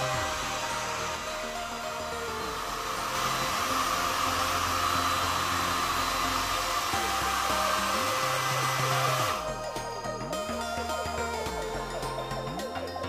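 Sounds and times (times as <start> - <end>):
electric blower motor running: 0.0 - 9.7
background music: 0.0 - 13.0.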